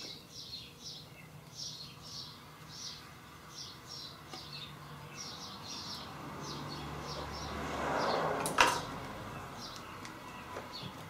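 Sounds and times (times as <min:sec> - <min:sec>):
birds chirping: 0:00.0 - 0:11.0
sharp metallic clank: 0:08.4 - 0:08.9.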